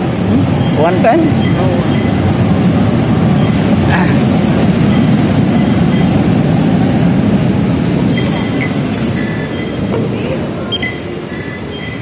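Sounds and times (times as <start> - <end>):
muffled crowd voices: 0.0 - 2.4, 5.7 - 12.0
loud steady rumble: 0.0 - 12.0.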